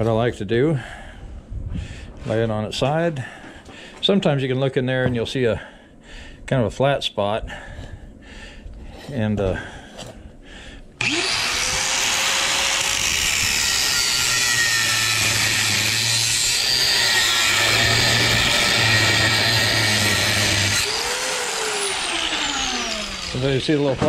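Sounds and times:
angle grinder cutting steel: 11.0 - 24.0
grinder spinning down: 11.0 - 24.0.

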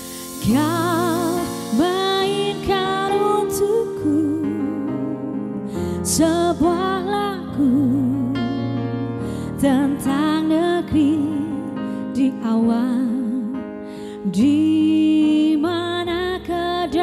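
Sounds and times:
electronic keyboard chords: 0.0 - 12.3
woman singing with vibrato: 0.3 - 8.8, 9.6 - 13.5.

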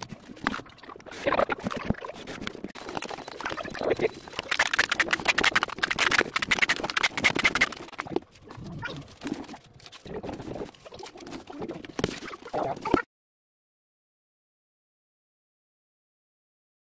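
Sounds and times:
hands rubbing tape on plastic: 0.0 - 13.0.

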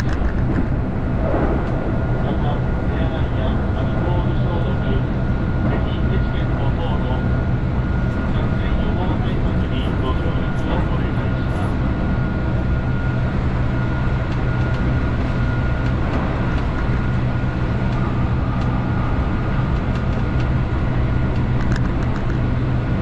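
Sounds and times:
train wheels rumbling on rail: 0.0 - 6.6, 14.2 - 23.0
faint high whine: 0.1 - 21.6.

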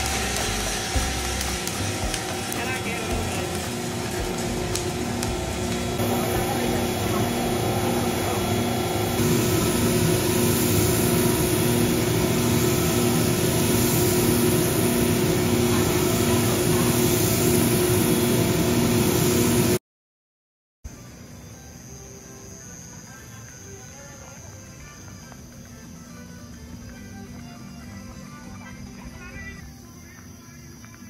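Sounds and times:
coffee beans rustling: 0.0 - 17.1.

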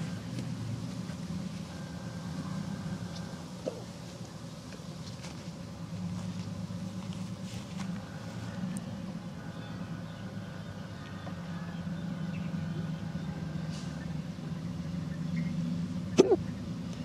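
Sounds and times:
low engine drone: 0.0 - 17.0.

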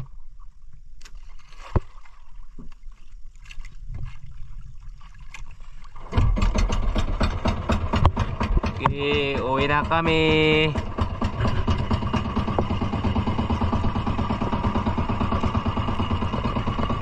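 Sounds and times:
water slapping against hull: 1.0 - 17.0
low rumble: 6.1 - 17.0.

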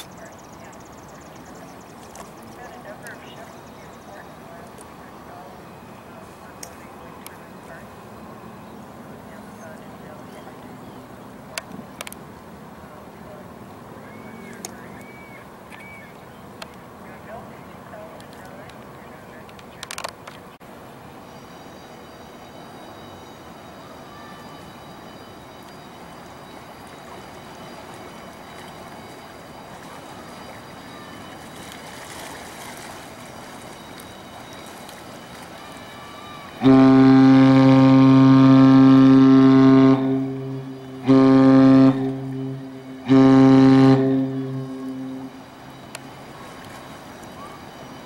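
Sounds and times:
ship horn blasts: 33.5 - 48.0.

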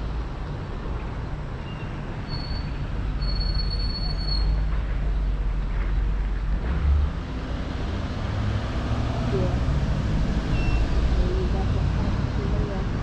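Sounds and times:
street traffic rumble: 0.0 - 13.0.

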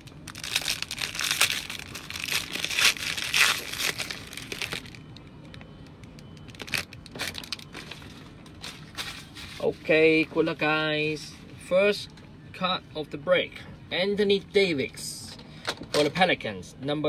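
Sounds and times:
foil wrapper tearing and crumpling: 0.0 - 5.0.

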